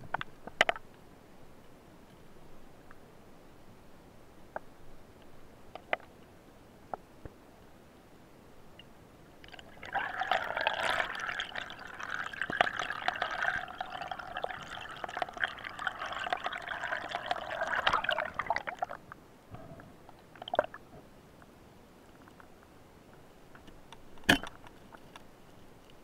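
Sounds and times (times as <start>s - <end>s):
water gurgling and bubbling: 9.5s - 19.0s.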